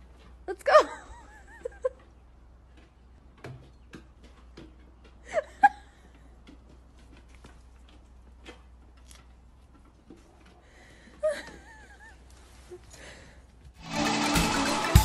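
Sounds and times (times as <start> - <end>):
paws tapping on wooden steps: 1.6 - 11.7.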